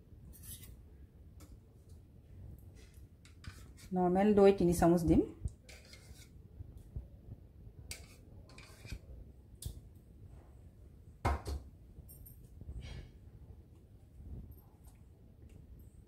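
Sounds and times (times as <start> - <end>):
spoon scraping and tapping bowls: 3.2 - 3.9, 5.5 - 6.3, 7.9 - 9.0.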